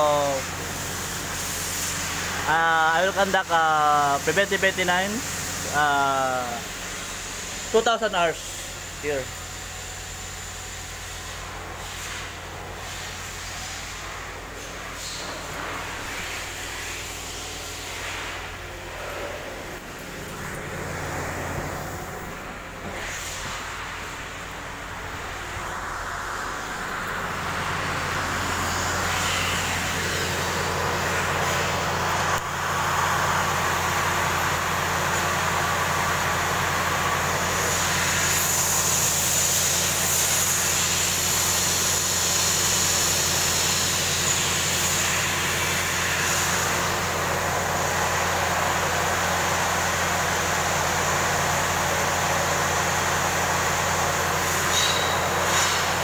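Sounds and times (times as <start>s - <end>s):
hiss: 0.0s - 9.2s, 9.8s - 19.4s, 22.8s - 24.4s, 25.0s - 56.0s
diesel engine idling: 12.4s - 56.0s.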